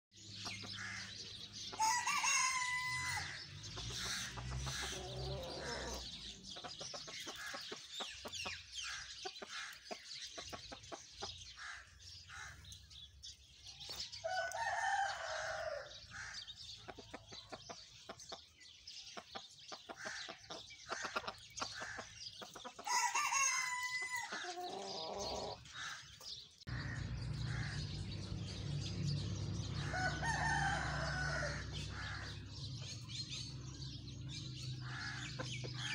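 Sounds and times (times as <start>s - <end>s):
rooster crowing: 1.8s - 3.4s, 14.2s - 16.0s, 22.9s - 25.1s, 29.6s - 32.4s
chicken clucking: 3.7s - 11.4s, 16.8s - 23.0s, 23.7s - 25.7s.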